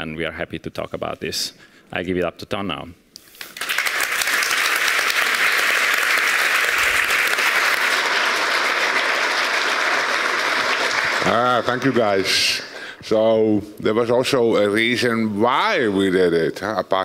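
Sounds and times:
large audience applauding: 3.4 - 12.8.

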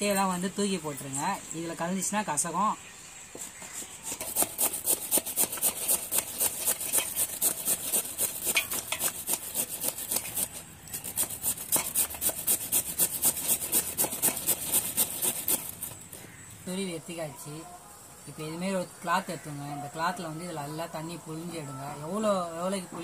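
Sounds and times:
gourd scraping on a steel grater: 3.4 - 16.2.

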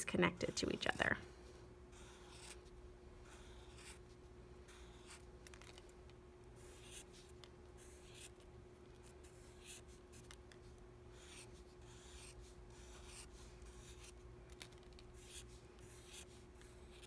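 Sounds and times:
marker drawing on paper: 1.9 - 5.3, 6.6 - 8.4, 9.0 - 14.2, 15.2 - 17.0.

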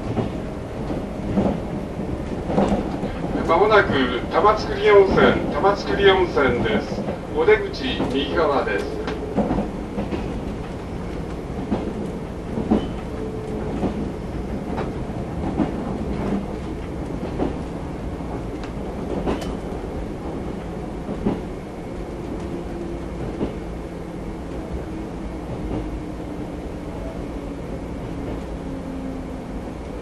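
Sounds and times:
electric train rumble: 0.0 - 30.0
wheels clicking over rail joints: 18.3 - 19.8.

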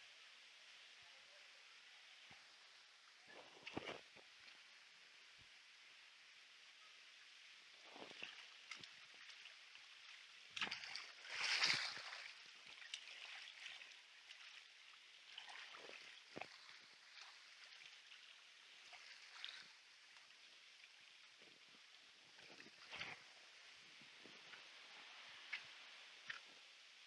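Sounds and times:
water flowing through pools: 0.0 - 27.0.

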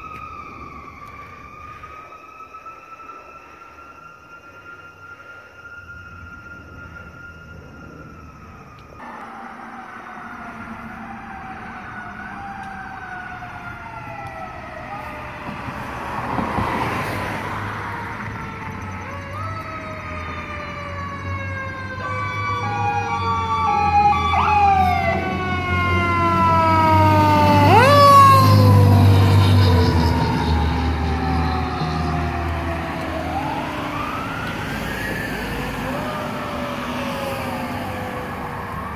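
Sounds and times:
distant siren wailing: 0.0 - 38.9
car passing: 4.1 - 38.9.

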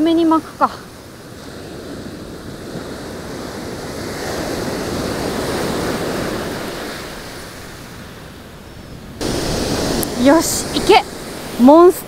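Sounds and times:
ocean surf breaking: 0.0 - 12.0.

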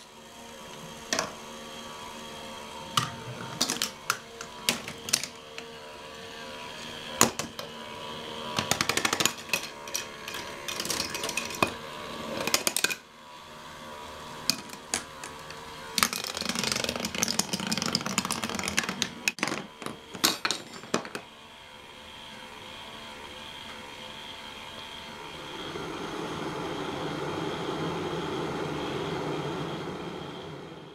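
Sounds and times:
plastic balls clattering: 2.9 - 5.5, 8.6 - 11.8, 12.4 - 13.0, 14.5 - 21.3
balls rolling on wooden rails: 3.0 - 5.4, 7.2 - 7.7, 8.6 - 13.0, 14.5 - 21.3.

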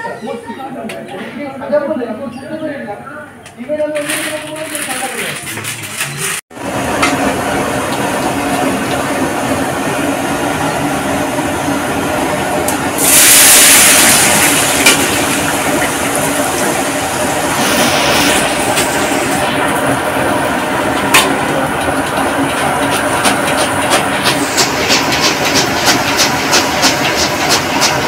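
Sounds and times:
oil bubbling deep-frying: 6.5 - 11.4, 12.7 - 28.0
potato strips sizzling in oil: 13.0 - 16.9.

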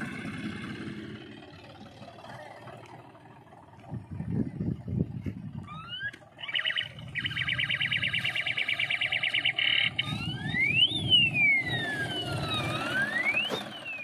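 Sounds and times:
low engine rumble: 0.0 - 14.0
electronic siren wailing: 5.5 - 14.0.

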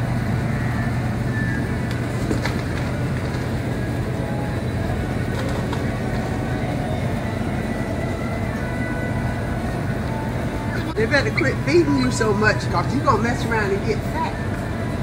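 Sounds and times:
low hum of refrigerated cases: 0.0 - 15.0.

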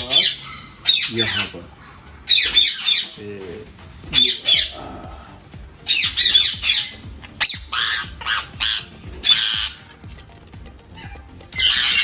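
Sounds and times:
parakeet screeching: 0.0 - 3.2, 4.0 - 4.8, 5.8 - 10.0, 10.9 - 12.0.

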